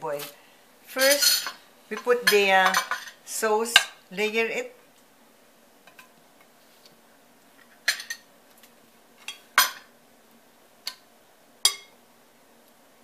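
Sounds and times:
spoon clinking against dishes: 0:11.6 - 0:11.9.

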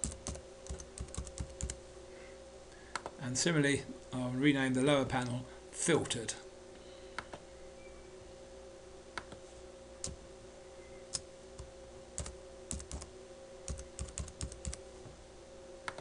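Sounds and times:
keyboard typing: 0:00.0 - 0:01.8, 0:11.1 - 0:13.1, 0:13.7 - 0:14.8.

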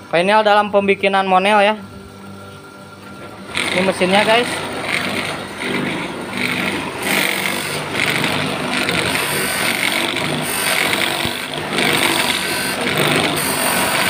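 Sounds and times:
polishing wheel grinding hiss: 0:03.5 - 0:14.0.

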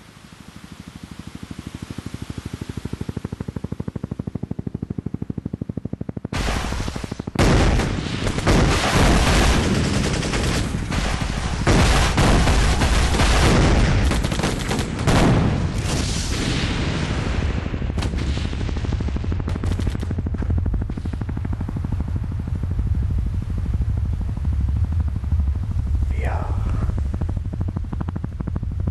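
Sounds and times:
helicopter rotor throb: 0:00.0 - 0:28.9
rifles and machine guns firing: 0:05.3 - 0:21.5.

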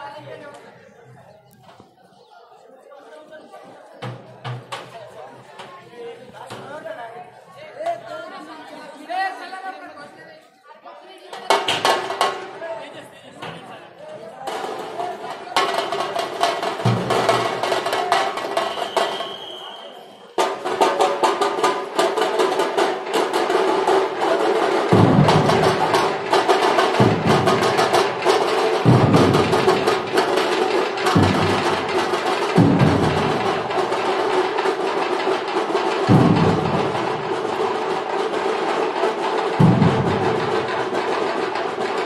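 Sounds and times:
fast drum rattle: 0:14.5 - 0:19.4, 0:20.4 - 0:42.0
heavy low drum beat: 0:22.2 - 0:42.0.

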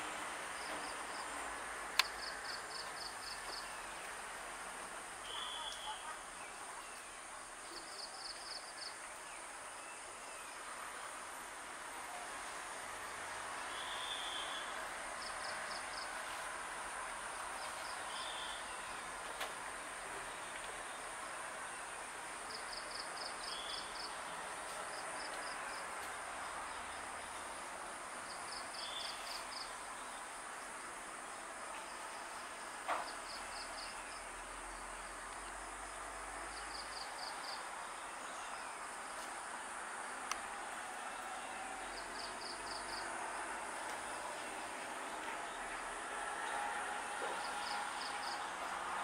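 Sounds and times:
insects humming: 0:00.1 - 0:11.0, 0:13.0 - 0:49.0.

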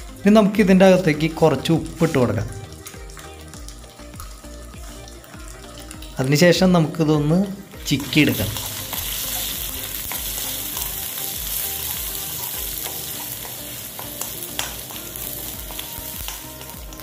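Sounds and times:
egg sizzling in oil: 0:01.0 - 0:06.4, 0:07.5 - 0:17.0
spatula scraping and tapping pan: 0:08.6 - 0:11.0, 0:11.7 - 0:16.8.

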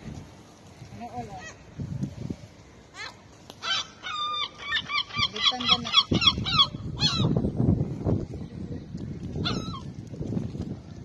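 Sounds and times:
seagull calling: 0:02.9 - 0:07.4, 0:09.4 - 0:09.9.

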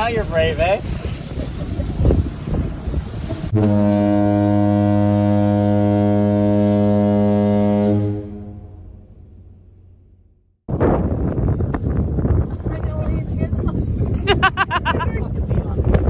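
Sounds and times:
wind on microphone: 0:00.0 - 0:06.4, 0:10.7 - 0:16.0
marine horn blast: 0:03.5 - 0:09.9.

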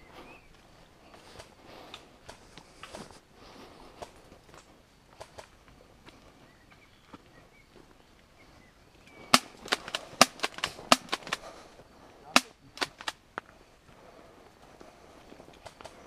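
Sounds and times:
airsoft gun shots: 0:09.3 - 0:11.4, 0:12.4 - 0:13.1.

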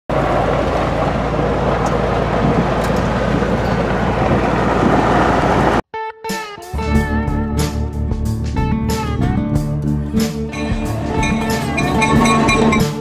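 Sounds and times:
engine and road noise from inside car: 0:00.1 - 0:05.8
guitar music: 0:06.0 - 0:13.0.

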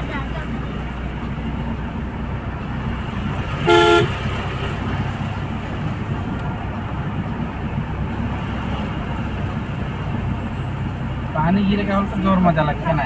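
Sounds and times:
engine and tyre hum in car: 0:00.0 - 0:13.0
car horn toot: 0:03.6 - 0:04.2.

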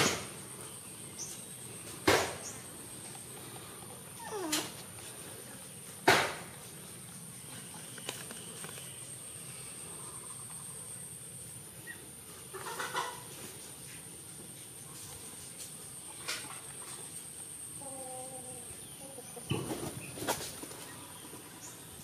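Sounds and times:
steady high hiss: 0:00.0 - 0:22.0
chicken calling: 0:03.8 - 0:05.0, 0:11.8 - 0:13.4, 0:17.8 - 0:19.5
chicken clucking: 0:11.8 - 0:13.9.

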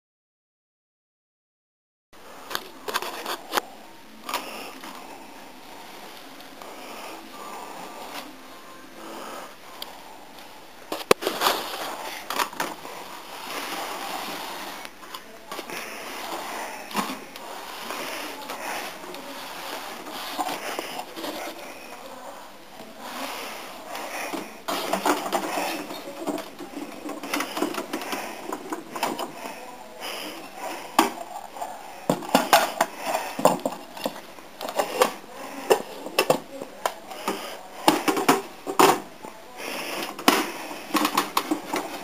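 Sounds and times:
plastic toy parts clicking and rattling: 0:24.3 - 0:29.4, 0:40.0 - 0:42.0.

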